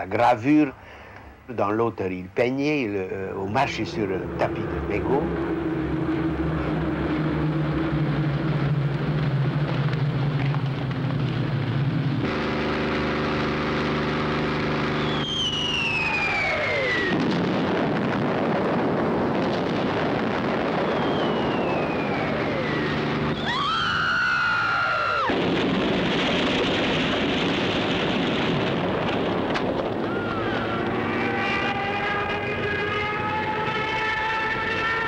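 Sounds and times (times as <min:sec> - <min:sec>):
explosions rumbling: 0:03.5 - 0:33.3
rising horn-like tone: 0:03.7 - 0:09.0, 0:30.1 - 0:35.0
falling bombs whistling: 0:03.7 - 0:35.0.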